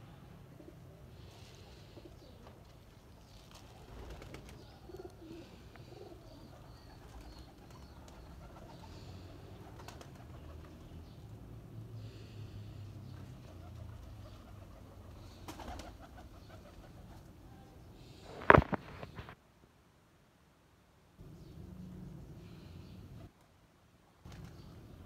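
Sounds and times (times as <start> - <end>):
pigeons cooing: 0.5 - 11.2, 12.1 - 19.4.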